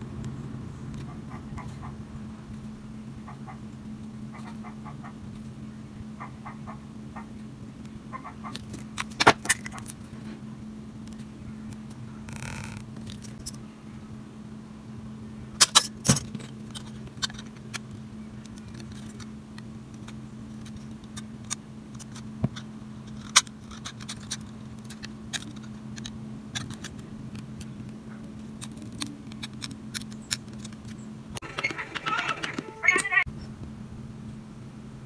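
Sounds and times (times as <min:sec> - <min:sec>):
steady low hum: 0:00.0 - 0:35.0
scissors snipping paper: 0:23.1 - 0:31.0.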